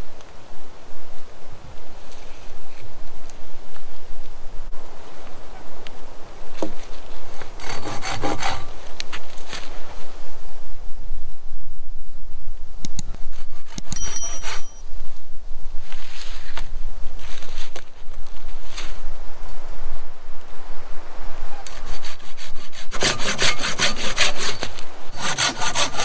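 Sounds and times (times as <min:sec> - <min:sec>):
hand saw cutting wood: 0:07.4 - 0:08.8, 0:21.7 - 0:26.0.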